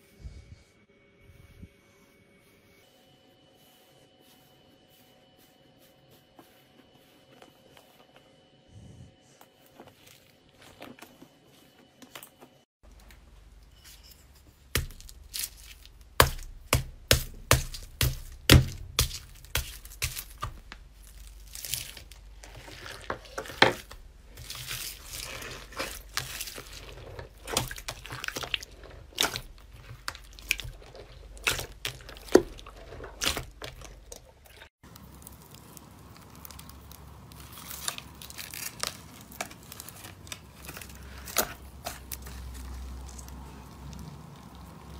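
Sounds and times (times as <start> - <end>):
slime rustling: 13.2 - 44.9
slime foam beads crackling: 14.7 - 41.1.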